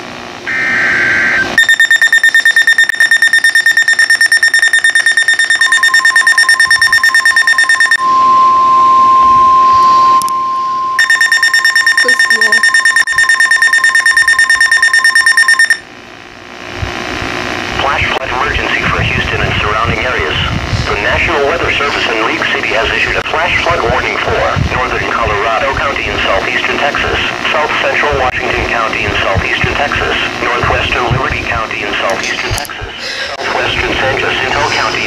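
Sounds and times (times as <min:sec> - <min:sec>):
warbling data header: 0:00.5 - 0:08.0, 0:11.0 - 0:15.8
pulsed alarm beeping: 0:00.5 - 0:15.9
steady warning tone: 0:00.5 - 0:15.9.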